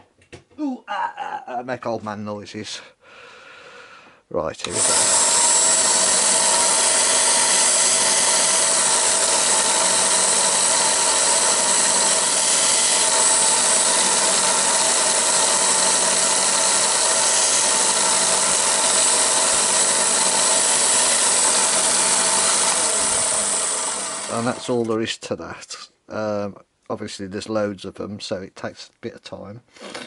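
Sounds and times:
belt sander running: 4.6s - 25.0s
wood sanding against belt: 4.8s - 24.8s.

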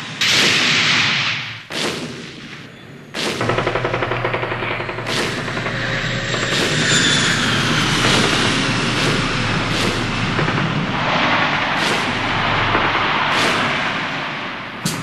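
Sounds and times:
aircraft and explosions rumble: 0.0s - 15.0s
gunshot cracks: 0.2s - 2.6s.

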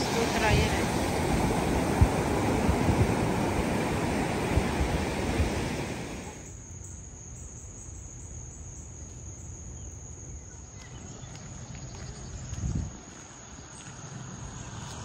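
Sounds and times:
surf washing on shore: 0.0s - 6.5s
wind on microphone: 0.0s - 6.5s, 11.2s - 13.2s.

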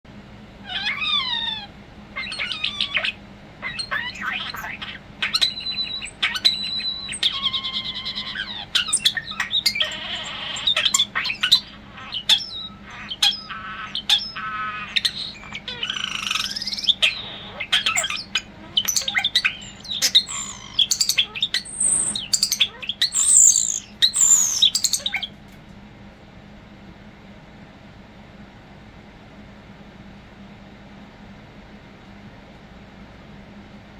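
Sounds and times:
starling singing: 0.7s - 25.4s.

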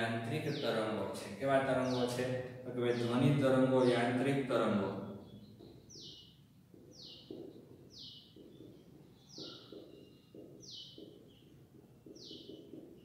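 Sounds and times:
high downward-sliding chirp: 5.2s - 13.0s
marker scratching on whiteboard: 5.6s - 13.0s.

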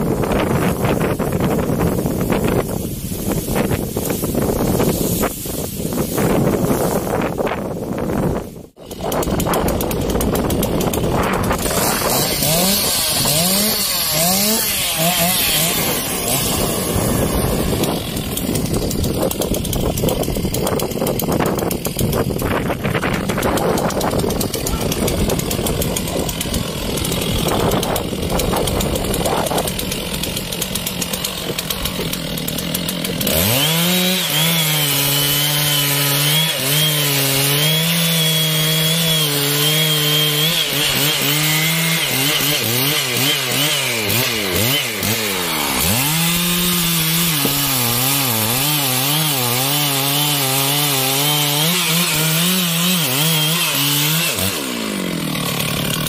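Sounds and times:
chainsaw idling: 0.0s - 56.0s
chainsaw sawing tree trunk: 0.0s - 56.0s.

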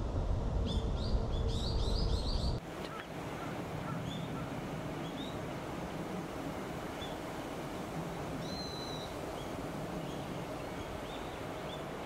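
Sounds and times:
low rumble: 0.0s - 2.6s.

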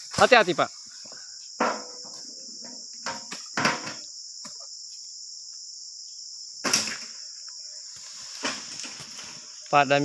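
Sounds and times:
high-pitched insect drone: 0.0s - 10.0s.

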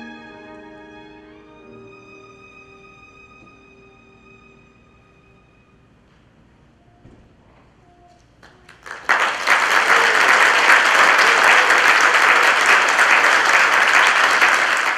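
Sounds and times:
audience applause: 8.4s - 14.9s.

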